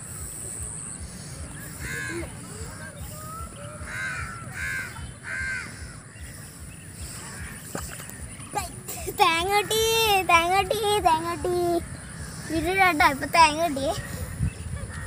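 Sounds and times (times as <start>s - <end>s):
steady low rumble: 0.0s - 15.0s
crow cawing: 1.7s - 2.3s, 3.8s - 6.1s.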